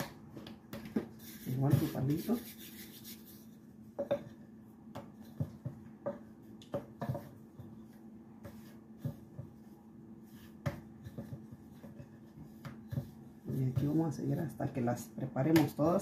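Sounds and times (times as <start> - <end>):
soft rubbing of dough: 1.1 - 15.1.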